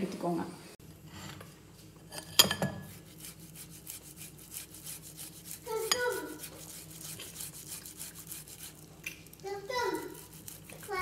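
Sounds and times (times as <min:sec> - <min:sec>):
potato rasping on metal grater: 0:02.8 - 0:08.9, 0:09.7 - 0:11.0
grater clinking on glass bowl: 0:03.9 - 0:08.7.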